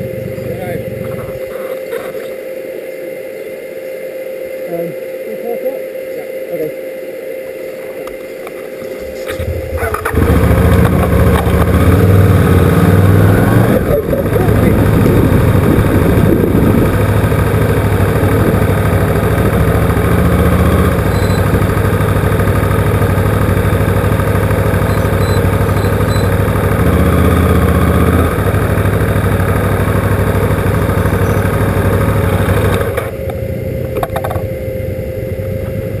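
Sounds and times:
motorcycle engine running: 0:00.0 - 0:02.6, 0:07.4 - 0:36.0.

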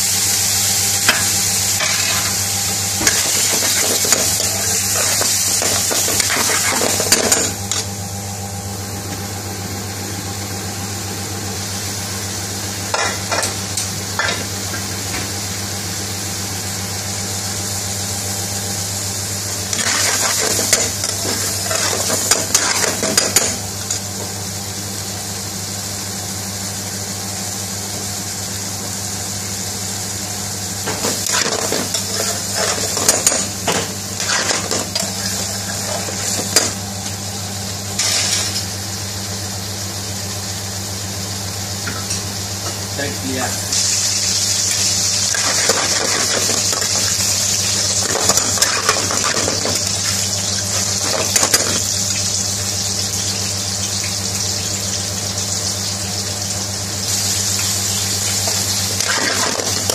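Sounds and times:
curry sizzling in a pan: 0:00.0 - 0:07.8, 0:17.0 - 0:25.8, 0:28.6 - 0:42.6, 0:43.2 - 0:59.9
utensil scraping a pan: 0:34.2 - 0:36.6.

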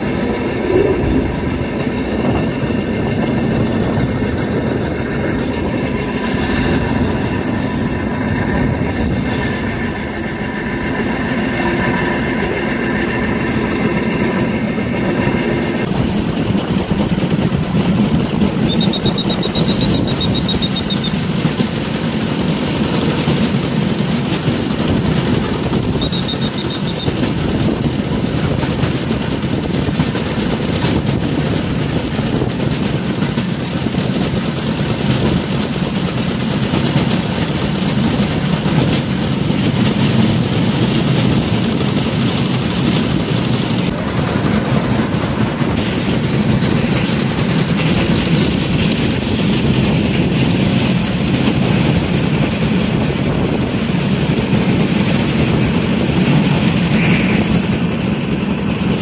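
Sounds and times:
low rumble: 0:00.0 - 0:11.3
rail trolley engine running: 0:00.0 - 0:59.0.

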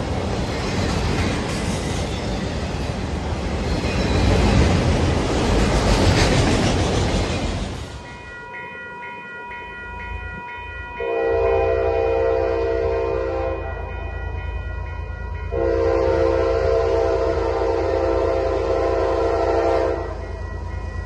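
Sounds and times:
locomotive air horn blasts: 0:11.0 - 0:13.8, 0:15.5 - 0:20.2.

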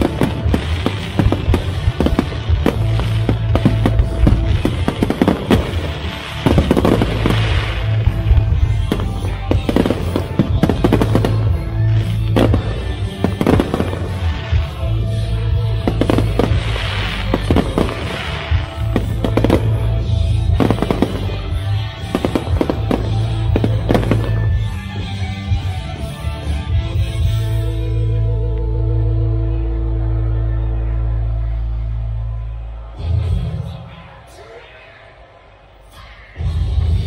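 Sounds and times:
fireworks bangs and crackles: 0:00.0 - 0:27.5
loud music with steady bass: 0:00.0 - 0:37.0.

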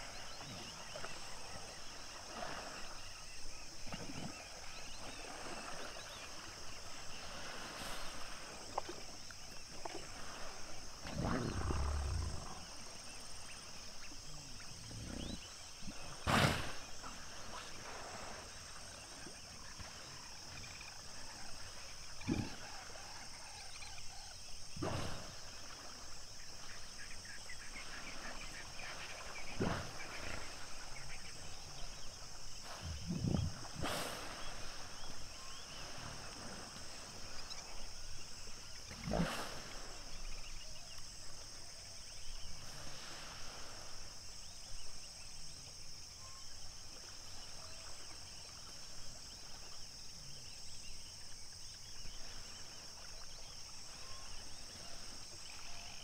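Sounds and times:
insects chorus: 0:00.0 - 0:56.0
hippos grunting and honking: 0:11.0 - 0:12.9, 0:22.2 - 0:23.0.

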